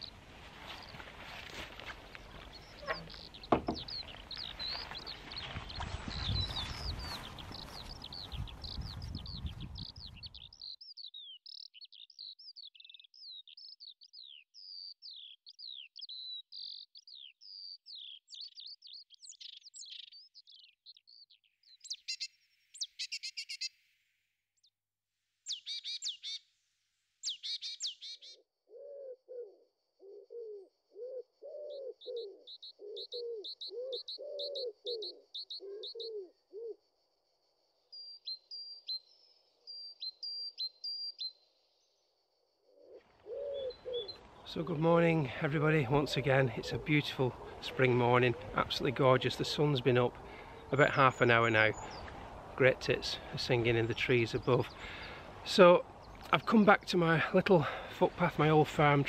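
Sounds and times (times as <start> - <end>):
dry rattling bird calls: 0.0 - 9.5
high chirping birdsong: 0.0 - 23.8, 25.4 - 26.5, 27.2 - 59.0
low repeated bird calls: 0.0 - 23.9, 25.4 - 26.5, 27.2 - 59.0.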